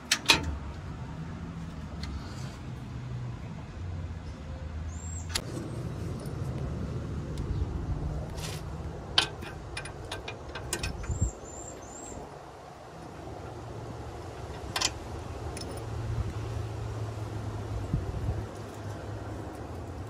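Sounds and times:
vehicle engine rumble: 0.0s - 20.0s
wrench clinking on metal: 9.2s - 11.3s.

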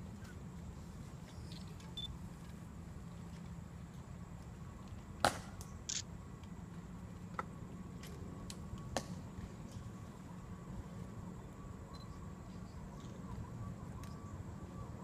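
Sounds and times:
sharp clicks: 5.9s - 6.1s.

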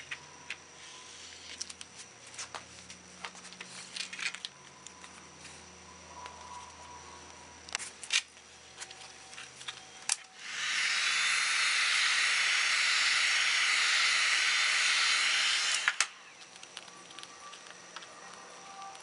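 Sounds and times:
heat gun blowing hot air: 10.4s - 16.2s.

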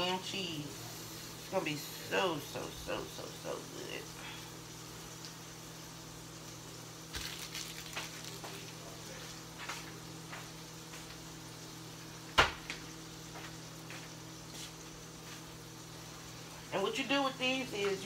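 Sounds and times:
bread sizzling in a skillet: 0.0s - 18.0s
steady hum: 0.0s - 18.0s.

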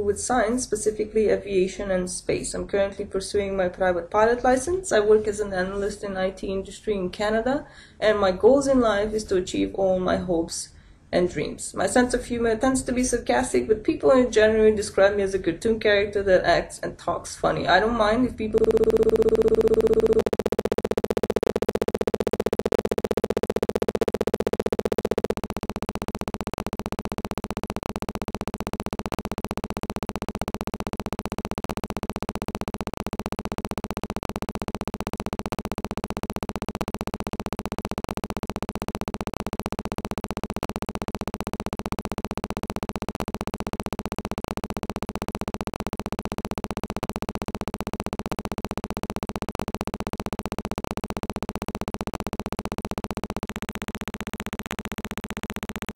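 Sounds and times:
electronic buzzing tone: 18.0s - 55.9s
fast even ticking: 18.5s - 55.9s.

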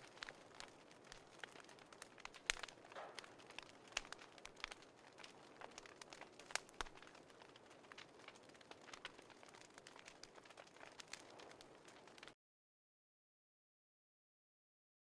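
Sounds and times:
faint irregular crackling: 0.0s - 12.4s.

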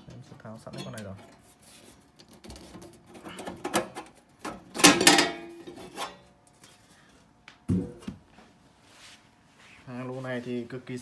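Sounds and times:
metal cover clanging: 3.6s - 6.2s.

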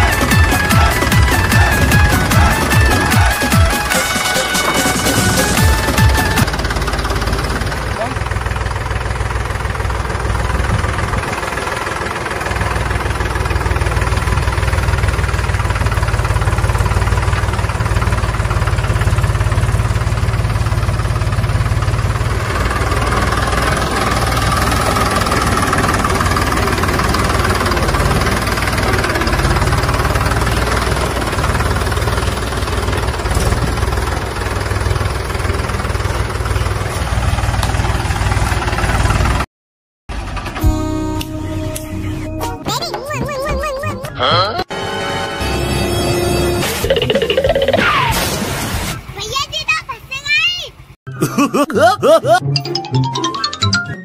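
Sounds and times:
small engine running: 0.0s - 39.4s.

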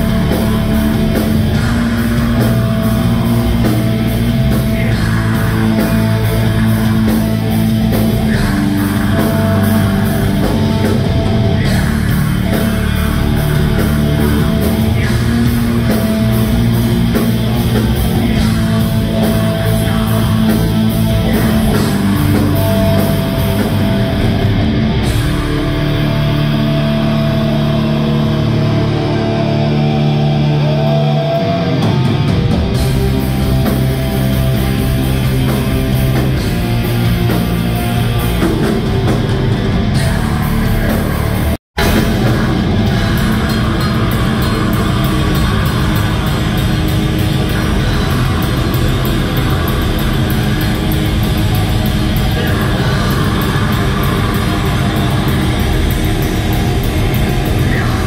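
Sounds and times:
fast drumming: 0.0s - 26.1s, 31.8s - 58.0s
heavy metal band playing: 0.0s - 58.0s.

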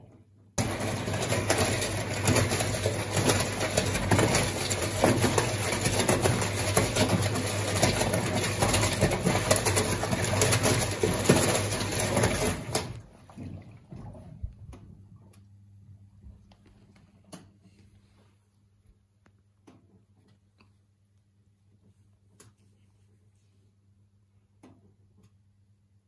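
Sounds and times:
washing machine drum churning: 0.6s - 15.3s.

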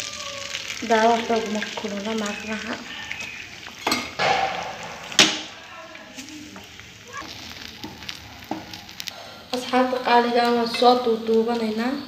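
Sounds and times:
eggs sizzling in a pan: 0.0s - 12.0s
sharp knock: 4.2s - 5.5s.

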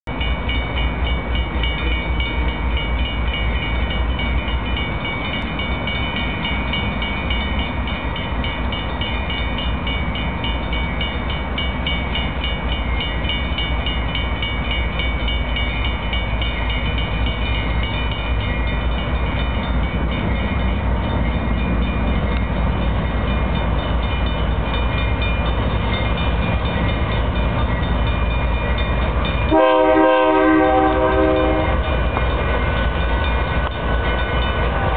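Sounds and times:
locomotive engine rumble: 0.1s - 34.9s
locomotive horn: 29.5s - 31.8s.

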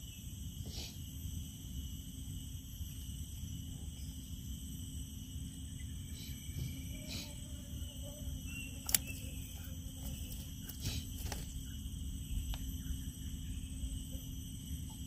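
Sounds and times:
insects chirring: 0.0s - 15.0s
low steady rumble: 0.0s - 15.0s
sharp clicks: 8.8s - 9.3s.

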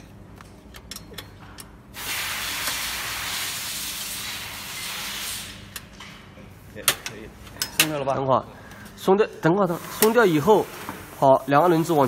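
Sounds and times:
loud steady hiss: 2.0s - 5.7s.

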